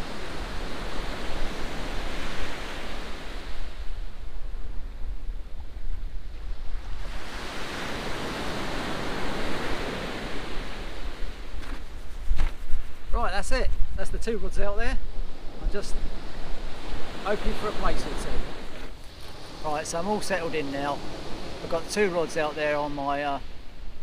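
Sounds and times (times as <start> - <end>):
wind rumbling on microphone: 0.0 - 24.0
waves washing on shingle: 16.4 - 23.4.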